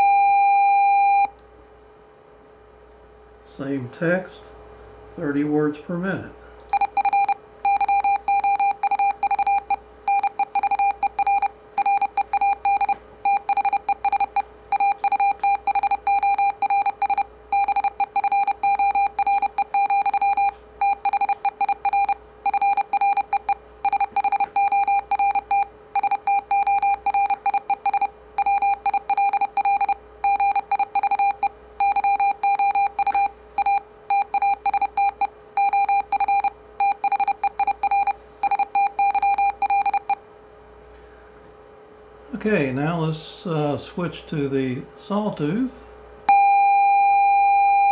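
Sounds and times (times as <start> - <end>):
morse code beeps: 0.0 - 1.3, 6.7 - 40.2, 46.3 - 47.9.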